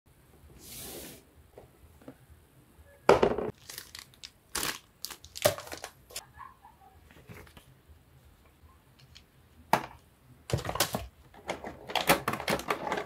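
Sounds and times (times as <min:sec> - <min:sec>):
plastic packaging crinkling and tearing: 0:03.5 - 0:06.2.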